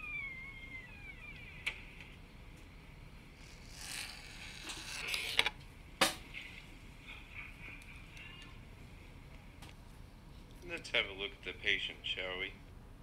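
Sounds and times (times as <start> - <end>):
faint falling squeak: 0.0 - 1.9.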